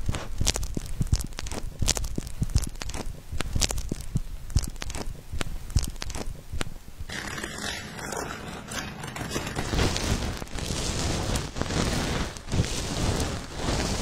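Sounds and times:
plastic glove crinkling: 0.0 - 7.2, 8.5 - 14.0
gritty scrub rubbing on lips: 0.1 - 6.6.

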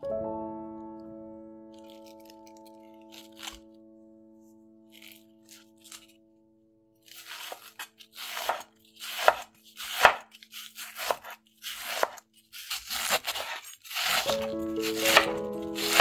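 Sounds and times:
knife slicing cabbage: 1.8 - 3.6, 4.9 - 6.2, 7.0 - 16.0.

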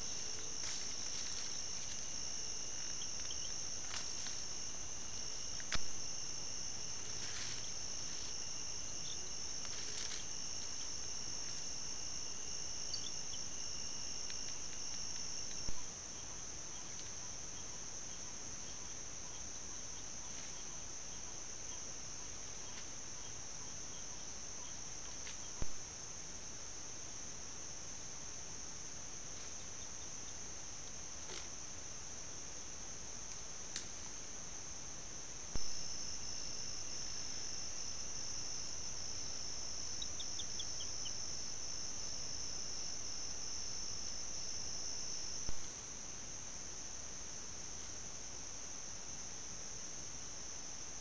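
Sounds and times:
rustles: 0.0 - 13.6, 14.2 - 23.4, 29.1 - 49.4
insects chorus: 0.0 - 51.0
lower insect trill: 0.0 - 51.0.

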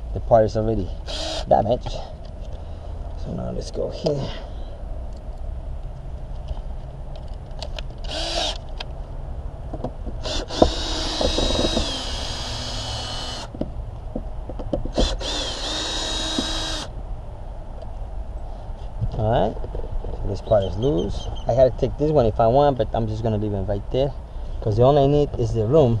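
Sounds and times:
cordless drill whining: 1.0 - 1.5, 8.1 - 8.6, 10.2 - 13.5, 14.9 - 16.9.

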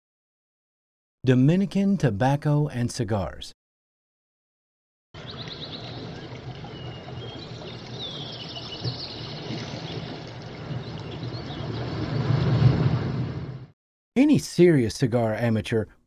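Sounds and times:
high bird calls chirping: 5.2 - 11.9.

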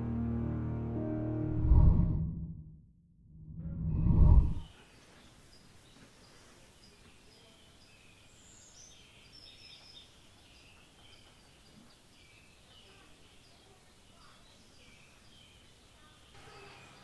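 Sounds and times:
small birds chirping: 4.5 - 17.0
steady low hiss: 4.7 - 16.5.

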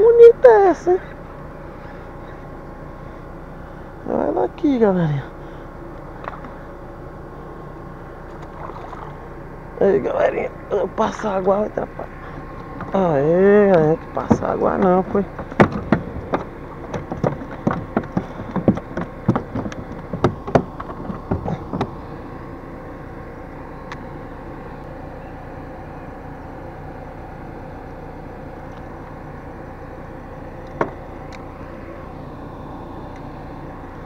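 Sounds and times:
low background hum: 0.0 - 34.0
gear clicking on plastic deck: 13.7 - 22.0.

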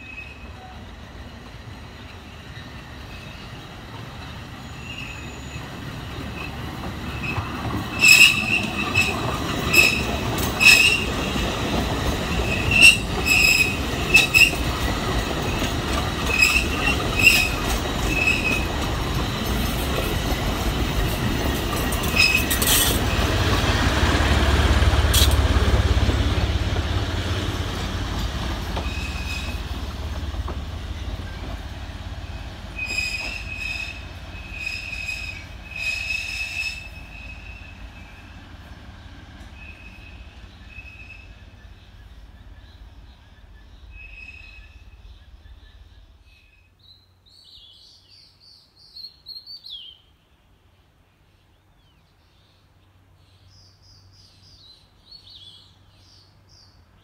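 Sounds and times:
train wheels squealing: 0.0 - 23.3, 28.4 - 30.0, 30.8 - 38.5, 39.4 - 41.9, 43.6 - 46.7
train low rumble: 0.0 - 48.1
wheels clicking over rail joints: 5.6 - 37.8.

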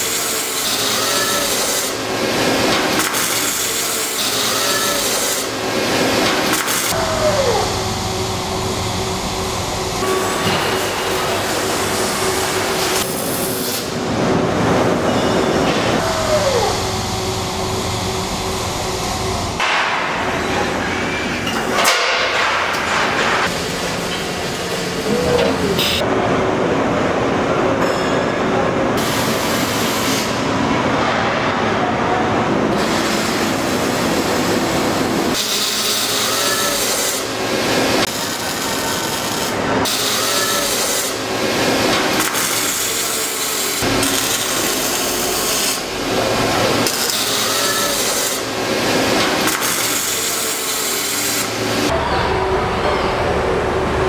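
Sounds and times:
rasping welding machinery: 0.0 - 26.1, 29.0 - 30.6, 32.7 - 54.0
short machine whines: 3.4 - 14.0, 14.9 - 19.6.

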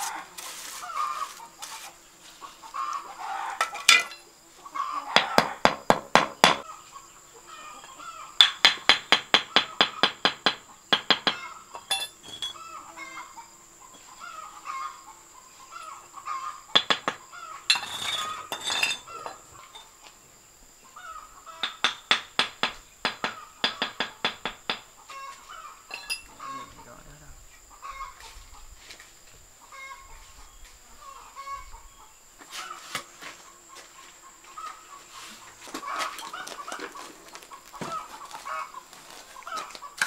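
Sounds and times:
chickens clucking: 0.0 - 5.6, 6.6 - 8.4, 12.5 - 20.2, 24.9 - 28.8, 29.6 - 40.0
sharp tapping on bricks: 5.2 - 6.6, 8.4 - 11.5, 16.7 - 18.8, 21.6 - 24.9.

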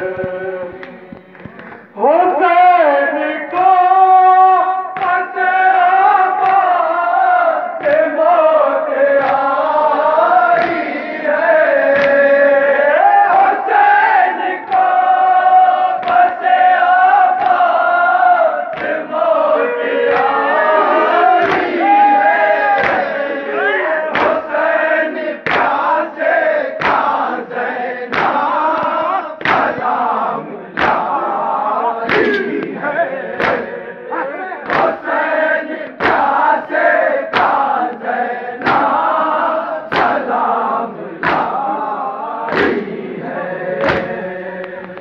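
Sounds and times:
men chanting a lament: 0.0 - 45.0
hands slapping chests: 0.2 - 1.9, 4.9 - 5.4, 6.3 - 6.7, 7.8 - 8.2, 9.1 - 9.6, 10.5 - 11.0, 11.8 - 12.3, 14.6 - 15.0, 15.9 - 17.8, 18.7 - 19.1, 20.1 - 20.4, 21.4 - 21.8, 22.7 - 23.2, 24.1 - 33.8, 34.6 - 41.7, 42.5 - 43.0, 43.8 - 45.0.

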